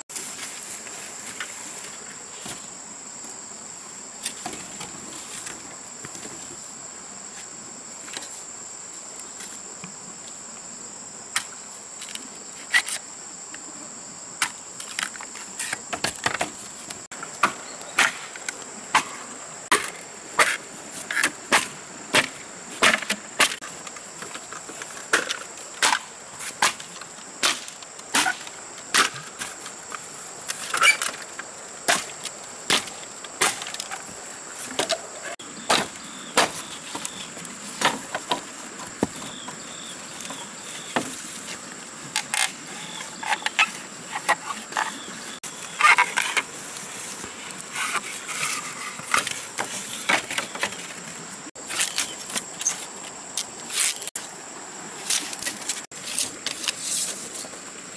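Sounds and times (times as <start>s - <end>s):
high insect drone: 0.0s - 57.9s
machete chopping bamboo: 17.4s - 23.6s, 27.4s - 29.4s, 31.9s - 34.0s, 35.7s - 37.1s.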